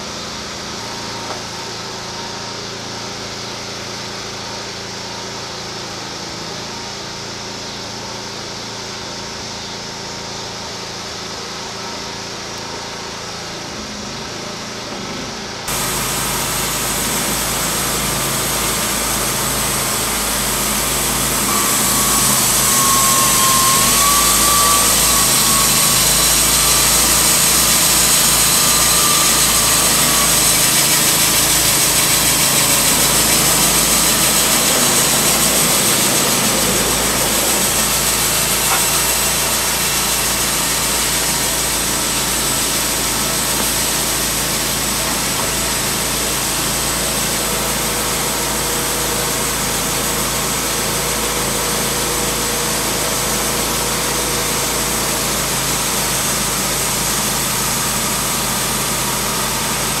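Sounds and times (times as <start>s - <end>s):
sawmill engine running: 0.0s - 60.0s.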